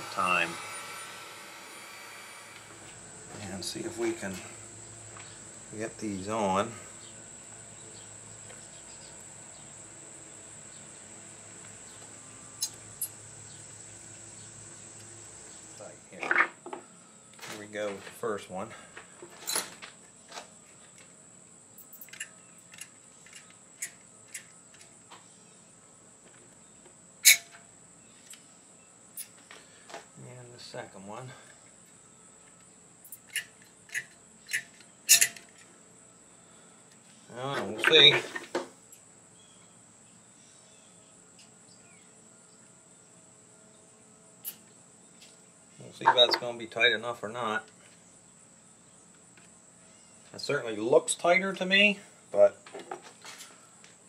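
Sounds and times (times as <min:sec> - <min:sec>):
faint high-pitched hum: 0:00.0 - 0:52.6
faint high-pitched tone: 0:46.0 - 0:46.9.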